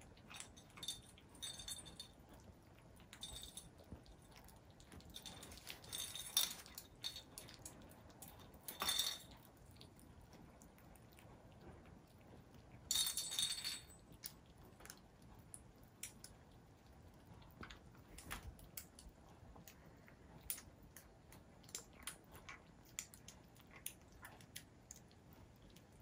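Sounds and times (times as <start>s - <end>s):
kittens chewing: 0.0s - 26.0s
teeth clicking on a plate: 13.9s - 26.0s.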